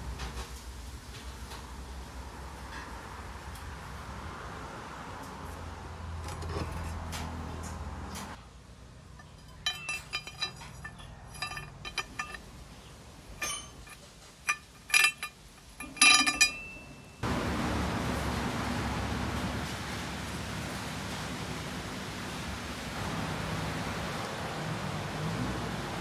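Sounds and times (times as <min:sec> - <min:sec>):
metal parts clinking and tapping: 0:06.2 - 0:07.2, 0:09.2 - 0:12.4, 0:13.4 - 0:17.2.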